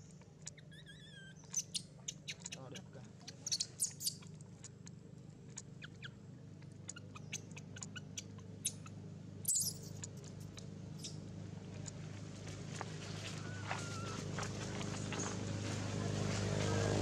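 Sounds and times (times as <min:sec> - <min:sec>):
monkeys squeaking: 0:00.0 - 0:04.7, 0:06.7 - 0:11.2, 0:13.3 - 0:15.4
steady low hum: 0:00.0 - 0:17.0.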